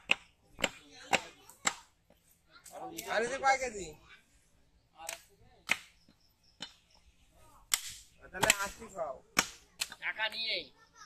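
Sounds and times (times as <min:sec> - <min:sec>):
cleaver chopping on wooden block: 0:00.0 - 0:01.8, 0:07.7 - 0:08.8, 0:09.4 - 0:10.0.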